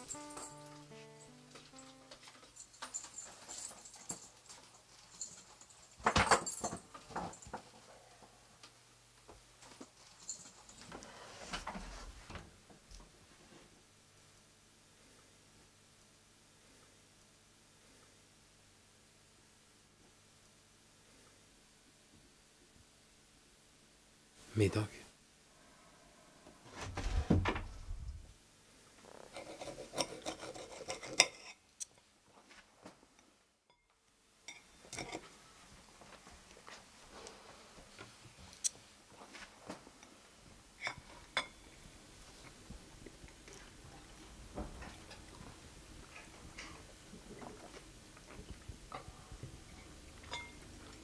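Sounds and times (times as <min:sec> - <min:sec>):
dishes and cutlery clicking: 0:29.3 - 0:32.0, 0:34.5 - 0:35.3, 0:49.8 - 0:50.6.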